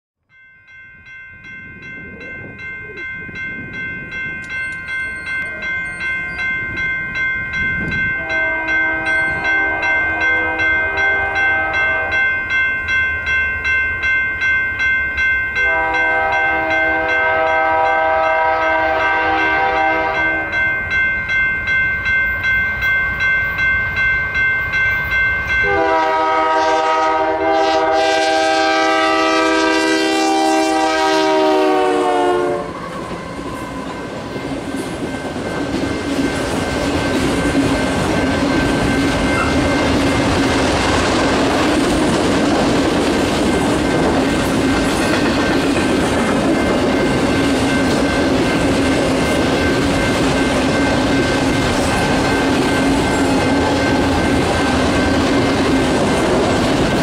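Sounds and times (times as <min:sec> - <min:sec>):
railroad crossing bell ringing: 0:00.2 - 0:57.0
low rumble of train: 0:00.3 - 0:57.0
train air horn blasts: 0:08.2 - 0:12.3, 0:15.6 - 0:20.6, 0:25.6 - 0:34.1.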